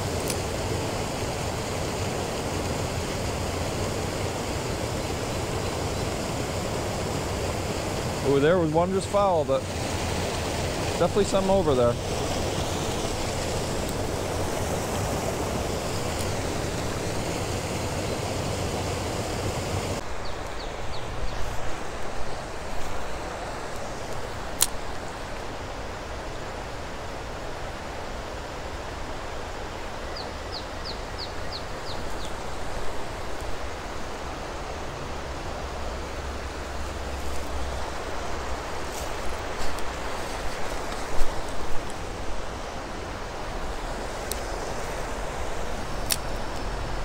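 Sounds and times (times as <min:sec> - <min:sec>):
water rushing over weir: 0:00.0 - 0:30.1
creek water flowing: 0:00.0 - 0:47.0.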